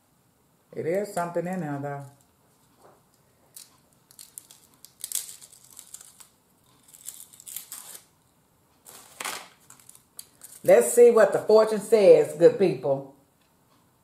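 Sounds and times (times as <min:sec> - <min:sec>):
fortune cookie crinkling and crackling: 0:01.1 - 0:08.2, 0:08.8 - 0:11.1.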